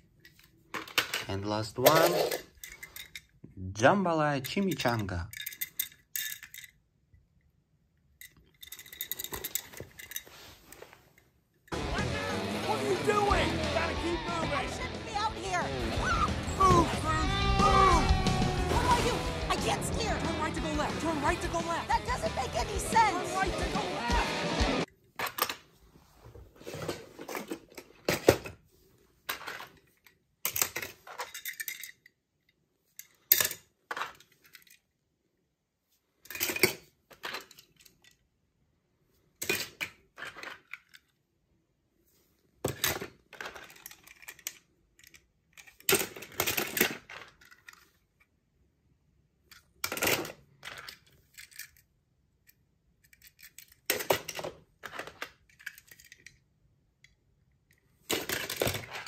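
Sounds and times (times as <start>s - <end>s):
toy cars clinking and clattering: 0.0s - 3.5s, 4.4s - 11.8s, 25.2s - 25.7s, 29.2s - 35.0s, 36.0s - 38.4s, 39.4s - 41.3s, 42.6s - 48.4s, 49.4s - 59.0s.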